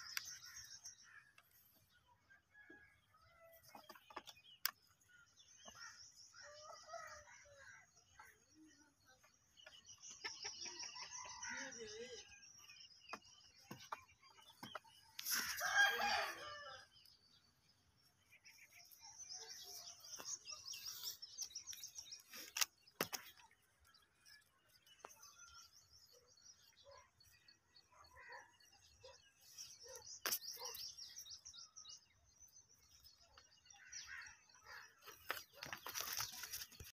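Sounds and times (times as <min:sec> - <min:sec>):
small birds chirping: 0:00.0 - 0:02.4, 0:03.2 - 0:37.0
rooster crowing: 0:15.5 - 0:16.8.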